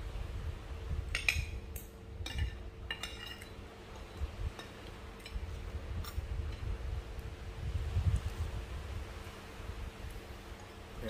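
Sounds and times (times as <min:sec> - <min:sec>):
cutlery clinking on plates: 0:02.2 - 0:05.5.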